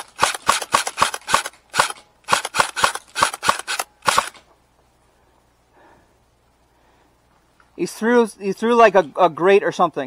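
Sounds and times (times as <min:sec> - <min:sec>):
airsoft rifle shots: 0:00.0 - 0:04.4.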